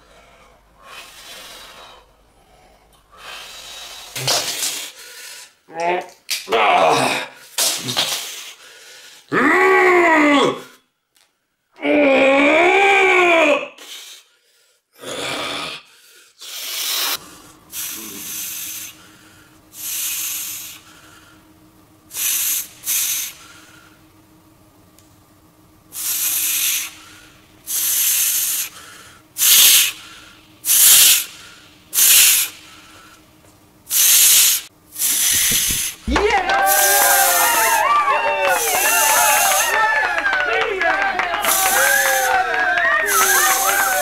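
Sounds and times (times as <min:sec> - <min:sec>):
man's sharp hissing breaths: 0:00.0 - 0:05.6, 0:07.3 - 0:09.3, 0:13.8 - 0:21.4, 0:22.1 - 0:24.0, 0:25.9 - 0:33.2, 0:33.9 - 0:36.0
faint steady hum: 0:00.0 - 0:13.1, 0:15.9 - 0:44.0.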